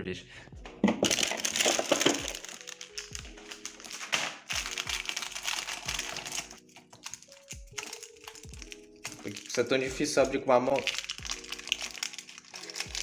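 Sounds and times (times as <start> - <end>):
background music with beat: 0.5 - 7.8
plastic wrapper crinkling: 1.0 - 13.0.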